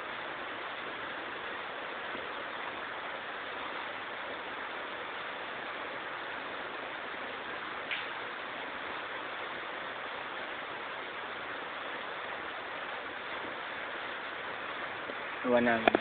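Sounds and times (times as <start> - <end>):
recording hiss: 0.0 - 16.0.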